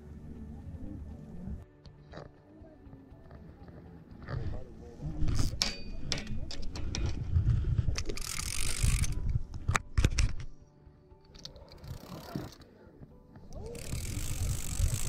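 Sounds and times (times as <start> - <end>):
fishing rod handling clicks and knocks: 5.2 - 10.6, 11.2 - 15.0.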